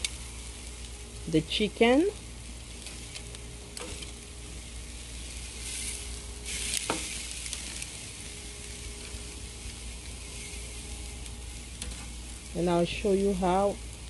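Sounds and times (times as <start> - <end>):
chicken sizzling on a grill: 0.0 - 14.0
tongs clicking on metal grate: 2.8 - 4.2, 11.8 - 12.1.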